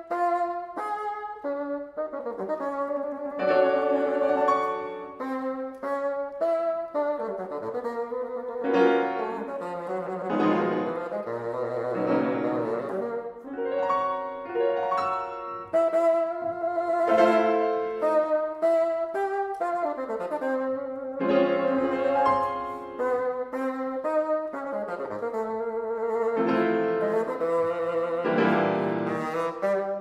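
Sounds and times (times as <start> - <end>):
bassoon melody: 0.0 - 30.0
piano accompaniment: 0.0 - 30.0.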